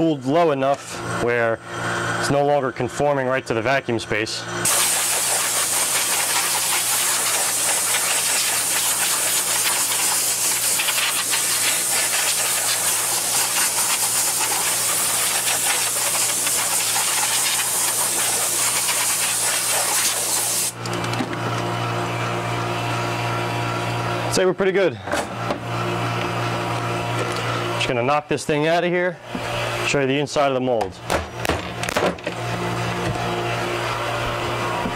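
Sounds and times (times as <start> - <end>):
compressed air blow gun hissing: 4.6 - 20.8.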